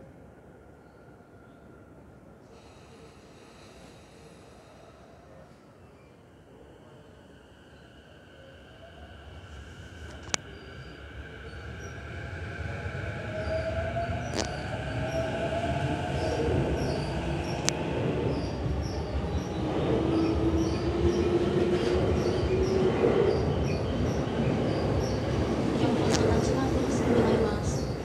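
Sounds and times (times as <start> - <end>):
train wheels rumbling: 9.4 - 28.0
sharp clicks from rails: 25.2 - 27.8.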